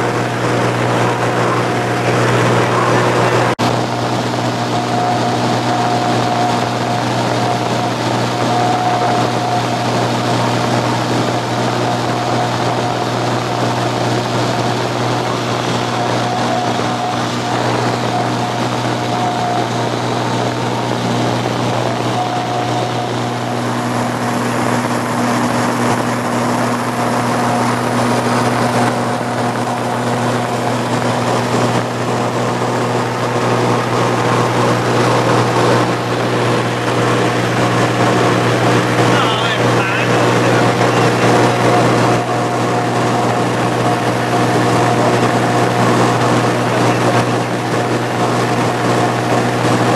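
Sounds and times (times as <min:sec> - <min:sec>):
air noise: 0:00.0 - 0:49.9
light aircraft engine drone: 0:00.0 - 0:49.9.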